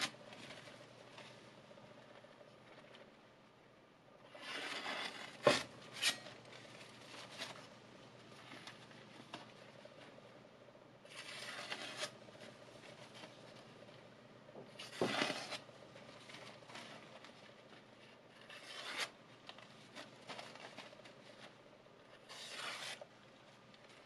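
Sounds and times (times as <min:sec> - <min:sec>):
paper rustling and crackling: 0:00.0 - 0:03.1, 0:04.3 - 0:10.2, 0:14.7 - 0:24.0
knife slicing paper: 0:11.1 - 0:12.2, 0:18.4 - 0:19.2, 0:22.2 - 0:23.1.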